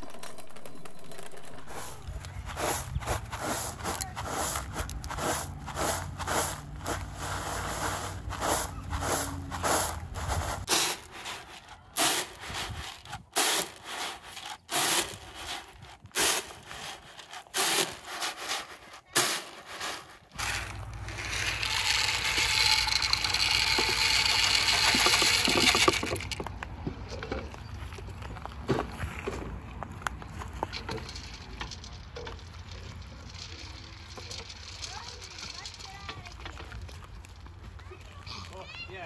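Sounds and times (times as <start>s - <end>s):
knocks and scrapes: 0.0s - 38.8s
corn kernels poured into pot: 1.7s - 26.5s, 30.6s - 36.8s.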